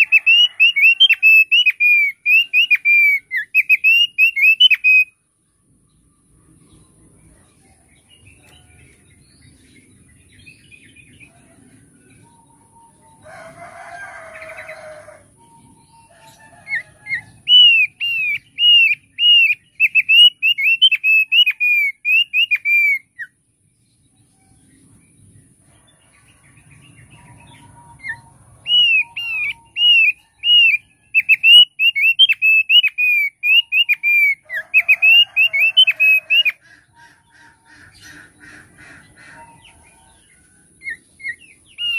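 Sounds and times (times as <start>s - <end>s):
bird singing clear notes: 12.1s - 23.3s.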